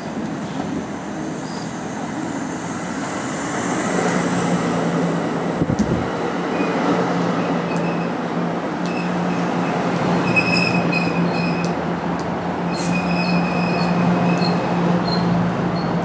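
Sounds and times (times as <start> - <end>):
train wheels squealing: 1.4 - 1.8, 10.1 - 11.7, 12.7 - 16.0.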